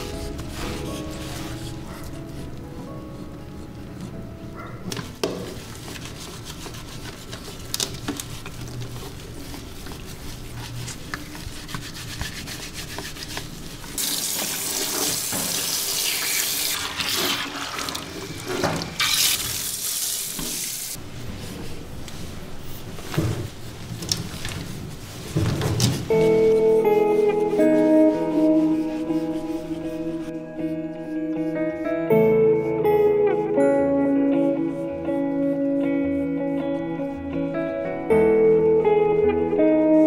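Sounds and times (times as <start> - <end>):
shower sprayer hissing: 14.0 - 21.0.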